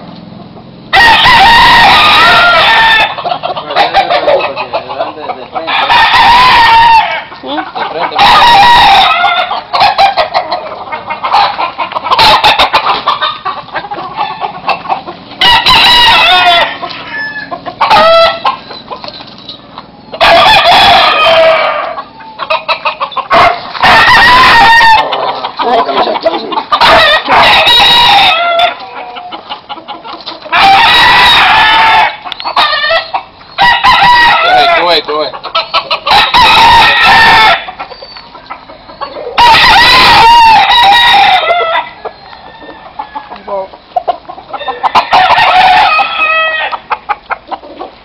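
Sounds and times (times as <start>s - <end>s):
roosters crowing: 0.0s - 48.0s.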